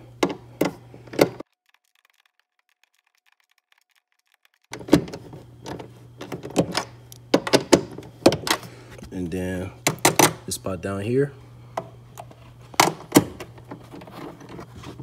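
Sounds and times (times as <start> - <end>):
low steady hum: 4.7 - 15.0.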